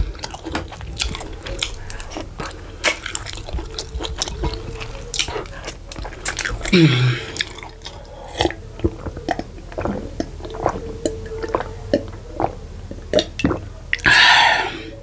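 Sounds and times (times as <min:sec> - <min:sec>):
person gulping water: 0:06.0 - 0:14.9
loud breathy exhale: 0:14.1 - 0:14.9.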